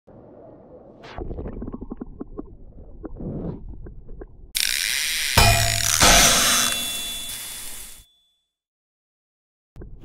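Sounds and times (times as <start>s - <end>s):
metallic clang with ringing tone: 5.4s - 8.3s.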